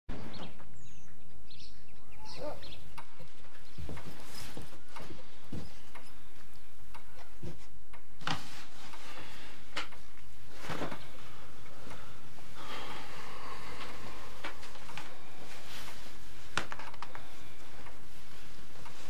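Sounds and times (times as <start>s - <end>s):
bird chirps: 0.1s - 4.5s.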